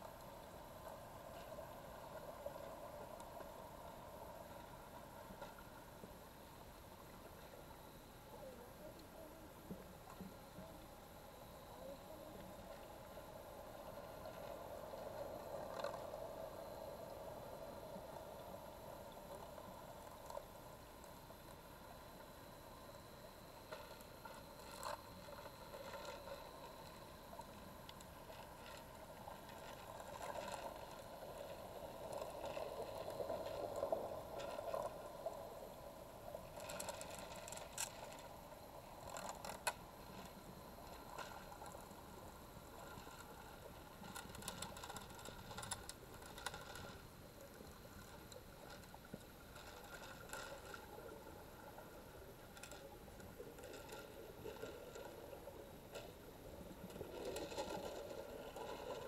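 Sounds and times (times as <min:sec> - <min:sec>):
faint motor whine: 0:00.0 - 0:59.0
water swishing: 0:00.0 - 0:59.0.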